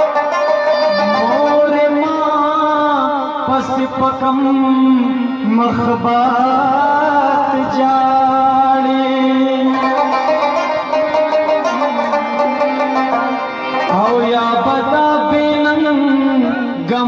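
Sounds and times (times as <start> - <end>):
wavering held melody: 0.0 - 2.5, 9.8 - 15.0
plucked string instrument: 0.0 - 17.0.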